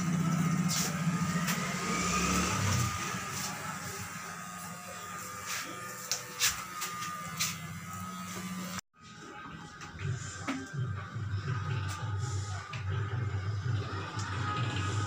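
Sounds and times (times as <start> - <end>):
electric hair clippers buzzing: 0.0 - 8.8.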